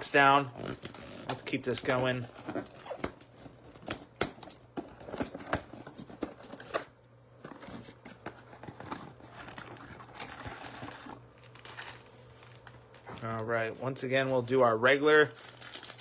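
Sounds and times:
foil wrapper crinkling: 0:08.8 - 0:16.0.

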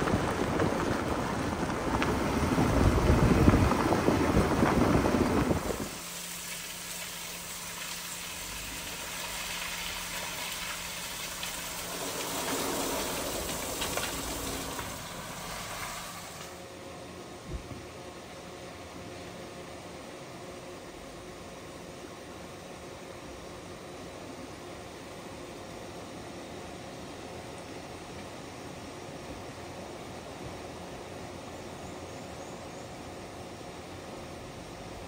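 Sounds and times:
water falling onto wet road: 0:00.0 - 0:16.6
tyres rumbling over gravel: 0:00.0 - 0:16.7.

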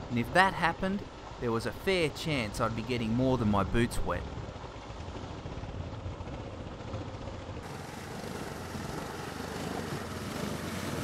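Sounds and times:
water splashing and rushing: 0:00.0 - 0:11.0.

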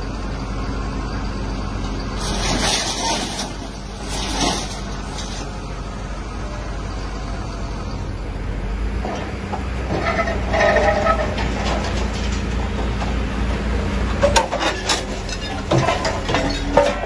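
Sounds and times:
excavator diesel engine running: 0:00.0 - 0:17.0.

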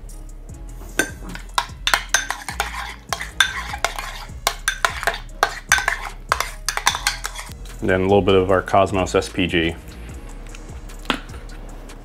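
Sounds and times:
spoon clinking and scraping bowl: 0:01.0 - 0:07.6.

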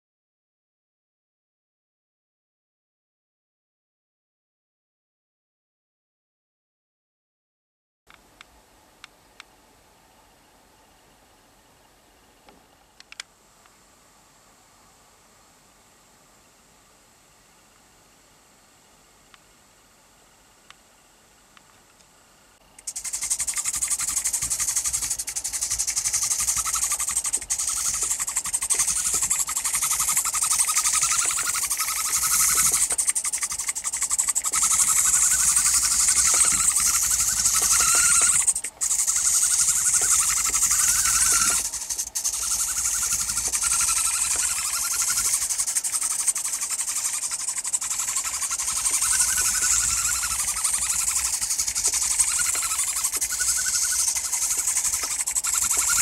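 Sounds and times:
toy motor buzzy whine: 0:22.8 - 0:56.0.

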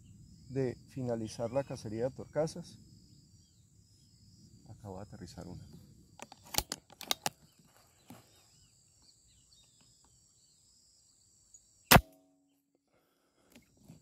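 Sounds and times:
insects trilling: 0:00.0 - 0:12.0
rifle handling clicks: 0:06.2 - 0:07.4
air rifle shot with ringing: 0:11.9 - 0:12.5.

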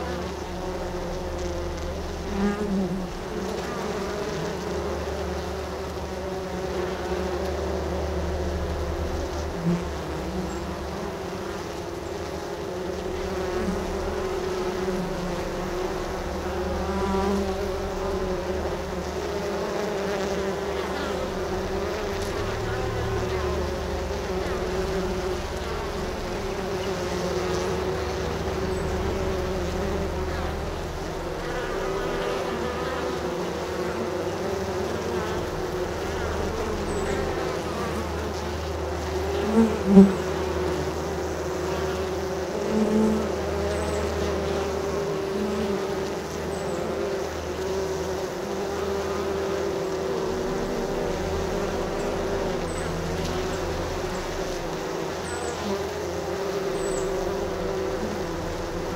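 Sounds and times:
honey bees buzzing: 0:00.0 - 0:58.9.

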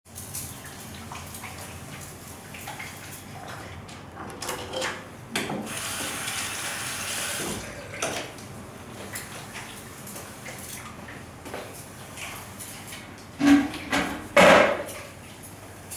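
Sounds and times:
water running from a tap: 0:05.7 - 0:08.0.

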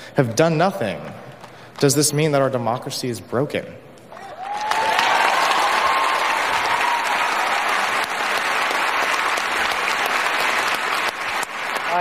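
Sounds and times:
large audience applauding: 0:04.2 - 0:12.0.

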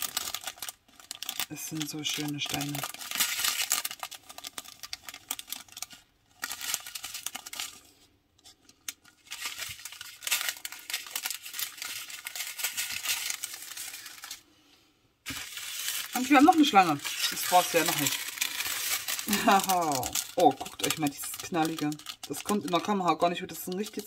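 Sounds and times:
small beads clicking in bags: 0:00.0 - 0:05.9, 0:15.3 - 0:24.0
plastic bags crinkling: 0:00.0 - 0:14.5, 0:15.2 - 0:24.0.

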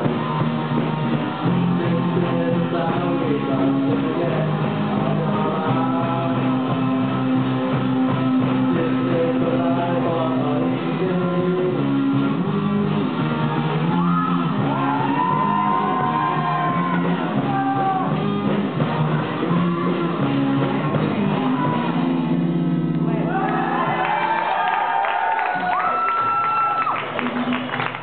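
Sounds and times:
drums: 0:00.0 - 0:28.0
electric guitars: 0:00.0 - 0:28.0
person singing and shouting: 0:13.8 - 0:22.5.

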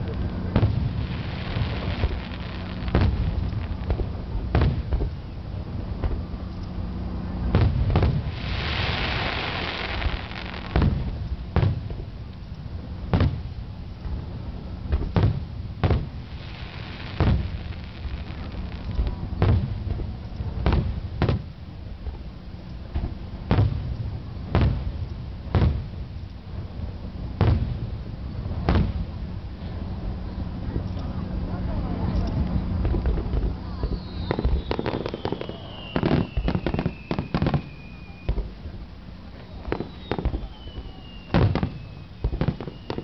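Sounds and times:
firework hiss: 0:00.0 - 0:05.0, 0:07.6 - 0:11.8, 0:15.2 - 0:19.9, 0:32.8 - 0:43.0
firework shells booming: 0:00.0 - 0:05.2, 0:07.5 - 0:12.1, 0:14.9 - 0:22.2, 0:22.9 - 0:26.0, 0:32.8 - 0:43.0.

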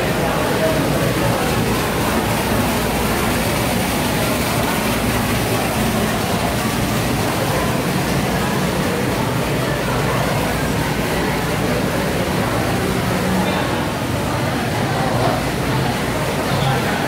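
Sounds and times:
water splashing into a pool: 0:00.0 - 0:17.0.

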